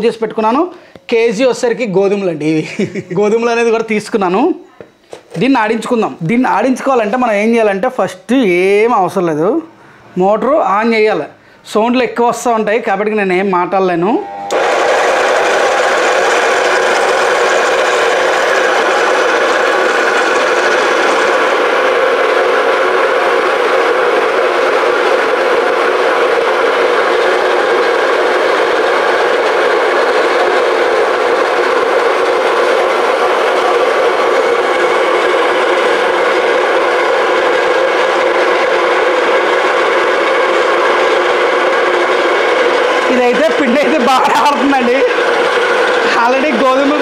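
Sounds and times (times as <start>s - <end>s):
flour mill grinding: 14.4s - 47.0s.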